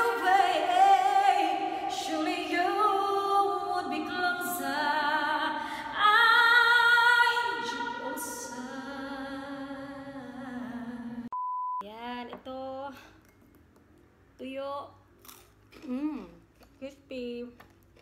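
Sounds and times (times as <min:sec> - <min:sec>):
woman singing with vibrato: 0:00.0 - 0:11.3
short steady beep: 0:11.3 - 0:11.8.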